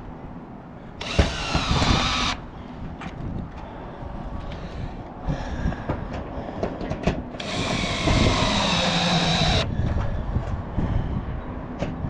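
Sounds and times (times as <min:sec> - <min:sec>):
wind rumble on microphone: 0:00.0 - 0:12.0
cordless drill driving screw: 0:01.0 - 0:02.4, 0:07.4 - 0:09.7.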